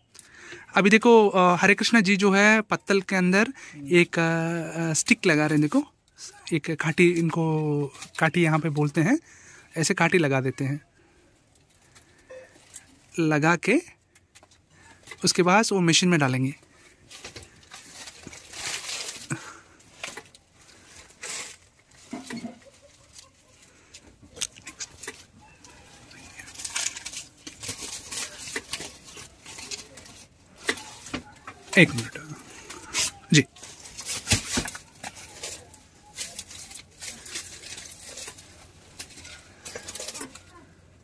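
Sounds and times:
dry leaves rustling and crinkling: 14.8s - 41.0s.

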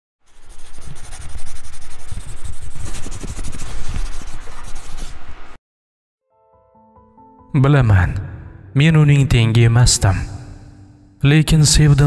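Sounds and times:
pencil scribbling on paper: 0.3s - 5.2s.

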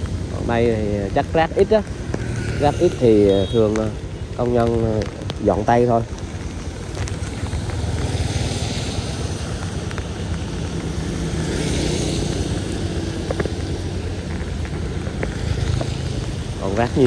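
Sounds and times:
road noise on wet street: 0.0s - 17.0s
vehicle engine hum: 0.0s - 17.0s
wind and rain hiss: 0.0s - 17.0s.

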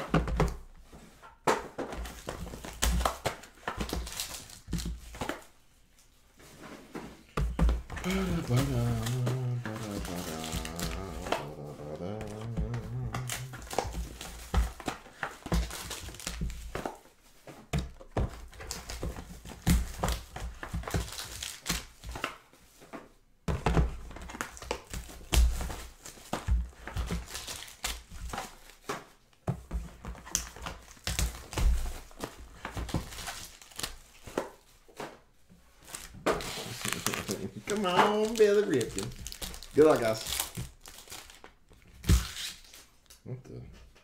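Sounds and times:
boxes thumping on table: 0.0s - 0.7s, 6.9s - 11.4s, 23.4s - 27.3s
foil wrappers crinkling and tearing: 2.1s - 5.2s, 8.0s - 16.7s, 18.4s - 22.2s, 24.2s - 28.8s, 30.3s - 34.3s, 35.8s - 43.2s.

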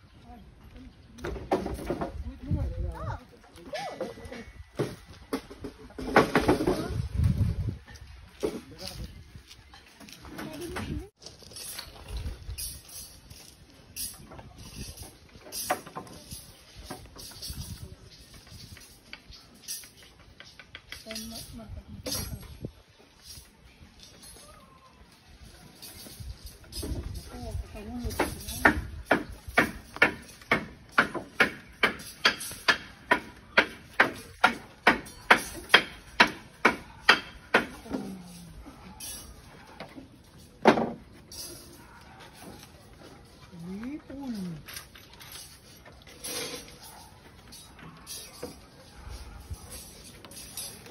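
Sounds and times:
metal clinks: 11.4s - 24.8s, 25.4s - 50.9s.

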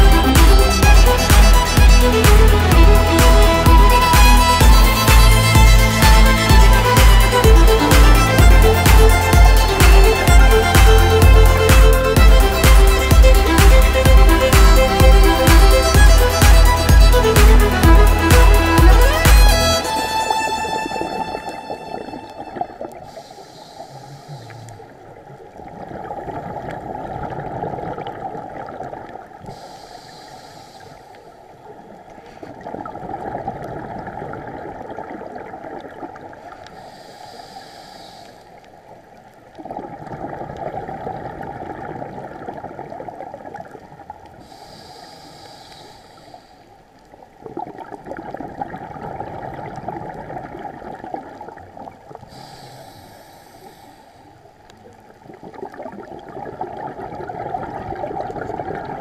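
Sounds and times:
exhaled bubbles gurgling: 20.0s - 45.9s, 46.6s - 59.0s
regulator inhalation hiss: 23.0s - 24.9s, 29.5s - 31.3s, 36.7s - 38.6s, 44.4s - 46.7s, 52.3s - 54.4s.

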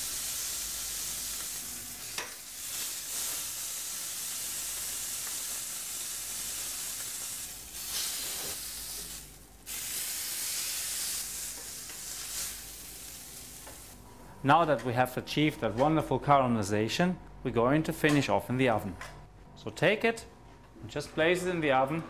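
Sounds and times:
meat sizzling in a hot pan: 0.0s - 14.0s.

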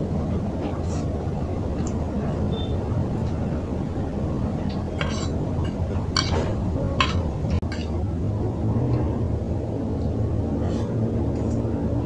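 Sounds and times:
fork clinking against a plate: 5.0s - 8.0s.

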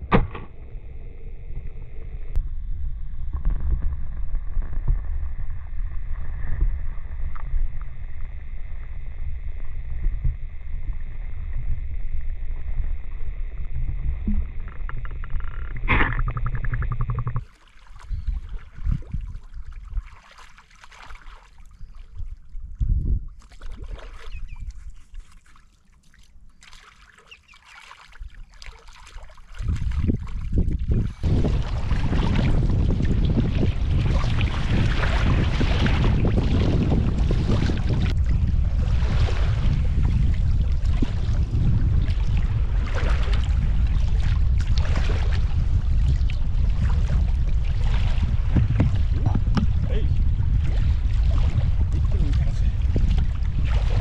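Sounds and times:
sharp knock: 0.0s - 0.5s
underwater rumble: 0.0s - 20.2s, 29.4s - 54.0s
gentle splashing water: 14.3s - 49.8s.

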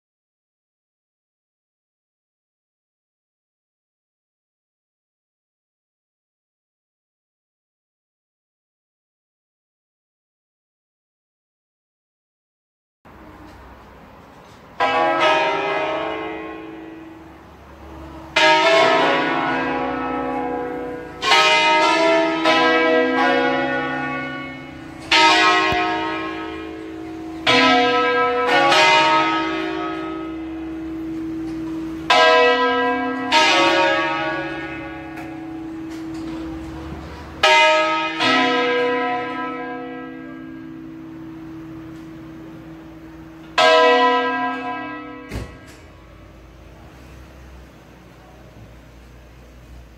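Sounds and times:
church bells pealing: 14.7s - 49.9s.

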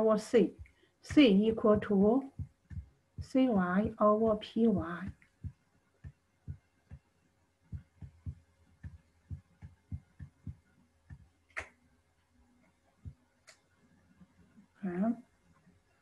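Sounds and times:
pen tapping on touchscreen: 1.6s - 7.1s, 7.7s - 11.4s.

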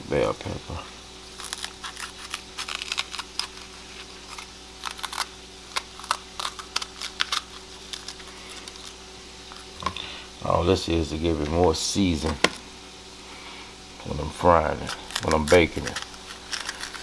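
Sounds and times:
bell pepper snapping and crackling: 1.4s - 9.0s, 14.8s - 17.0s.

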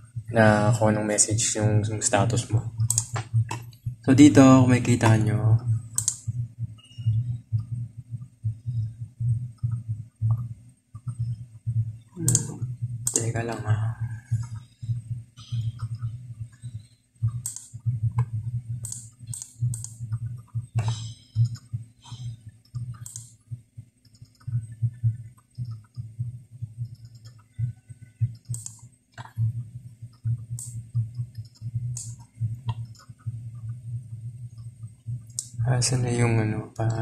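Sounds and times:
low hum: 0.0s - 37.0s
computer mouse clicks: 2.4s - 3.8s, 5.9s - 7.8s, 9.6s - 11.4s, 12.2s - 13.6s, 14.3s - 23.4s, 24.0s - 26.2s, 26.8s - 33.9s, 34.5s - 35.6s.

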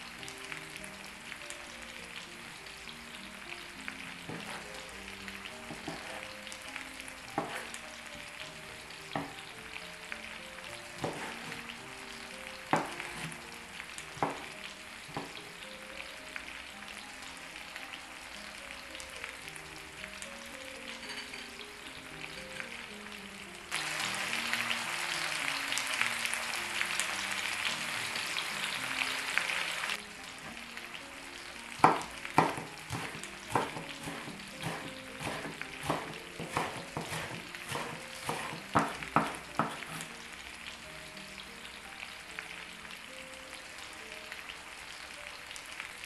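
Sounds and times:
food sizzling in a pan: 0.0s - 46.0s
soft background music: 0.0s - 46.0s
knife chopping on wooden board: 4.3s - 4.6s, 7.4s - 7.7s, 11.0s - 11.6s, 12.7s - 13.3s, 14.2s - 14.5s, 31.8s - 40.1s.

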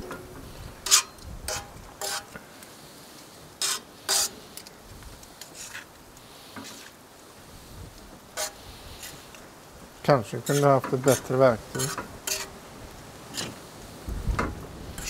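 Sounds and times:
metal tongs scraping griddle pan: 0.0s - 2.4s, 3.6s - 4.7s, 5.4s - 7.0s, 8.3s - 9.4s, 10.3s - 13.8s, 14.4s - 15.0s
faint sizzle of frying: 0.0s - 15.0s.

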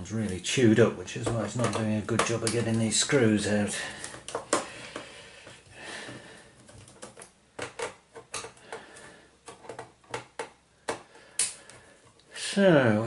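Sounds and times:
hands tapping plastic casing: 1.2s - 3.0s, 3.9s - 11.9s.

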